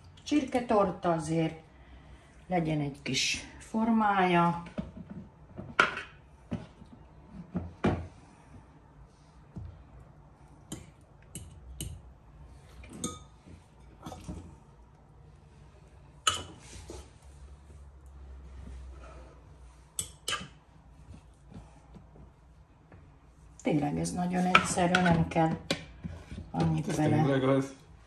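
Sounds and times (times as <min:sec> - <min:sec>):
dishes and utensils clinking: 0:12.9 - 0:14.5, 0:16.3 - 0:16.7, 0:20.0 - 0:20.6.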